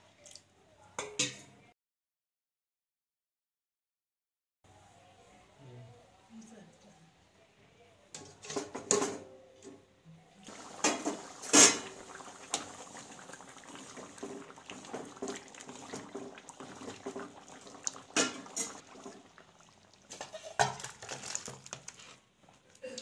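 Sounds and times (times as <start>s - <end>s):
curry bubbling: 10.4s - 22.6s
pot lid clanking: 10.6s - 12.3s, 18.0s - 19.0s.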